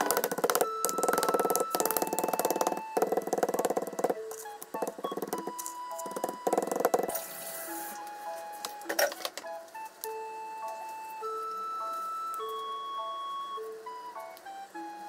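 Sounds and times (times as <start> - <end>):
rolling pin beating meat: 0.0 - 7.2
background music: 0.0 - 15.0.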